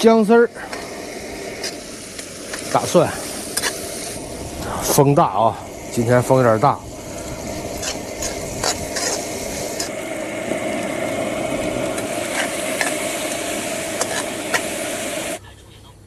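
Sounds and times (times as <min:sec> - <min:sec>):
meat sizzling in a wok: 0:00.0 - 0:15.4
metal ladle scraping a pan: 0:03.3 - 0:04.2, 0:07.1 - 0:09.9, 0:12.2 - 0:14.6.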